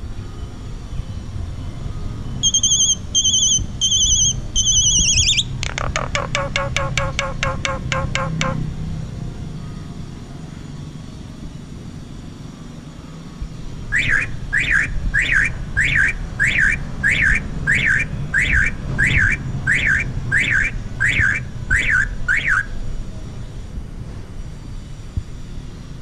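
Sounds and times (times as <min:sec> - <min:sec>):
bird whistled calls: 0:02.4 - 0:08.6, 0:13.9 - 0:22.8.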